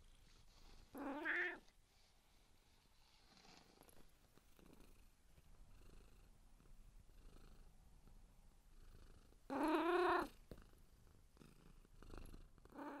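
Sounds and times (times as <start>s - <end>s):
cat purring: 0.0s - 13.0s
cat meowing: 1.0s - 1.6s.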